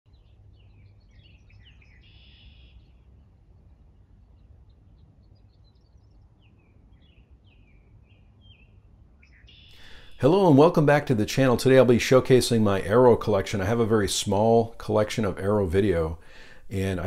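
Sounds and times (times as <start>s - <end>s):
songbirds chirping and singing: 0.1s - 12.2s
buzzy bird trill: 0.2s - 3.1s, 5.3s - 9.9s
faint low rumble: 2.8s - 9.3s.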